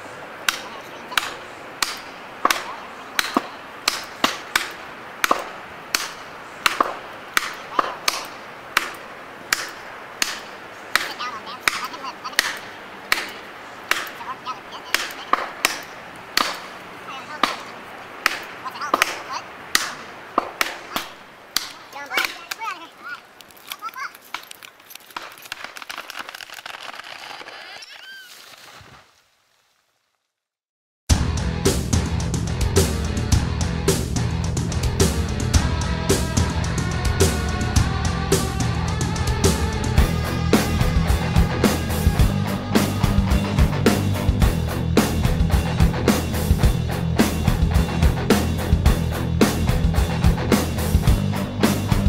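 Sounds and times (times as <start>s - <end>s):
hammer knocking wedges into tree: 1.2s - 14.2s, 15.0s - 16.8s
tree cracking and falling: 19.1s - 30.5s.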